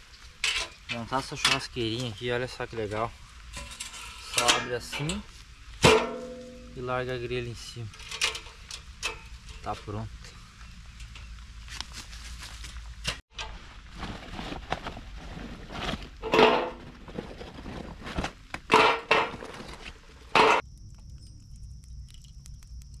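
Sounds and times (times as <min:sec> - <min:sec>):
camping gear knocking and clinking: 0:00.4 - 0:01.7, 0:03.5 - 0:06.8, 0:07.9 - 0:20.6
loud ringing bangs: 0:05.8 - 0:07.0
faint ticks: 0:20.6 - 0:23.0.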